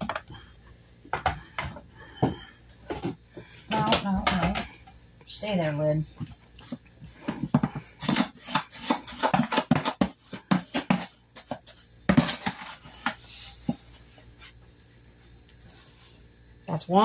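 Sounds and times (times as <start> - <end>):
cup scraping through sugar: 7.9 - 13.6.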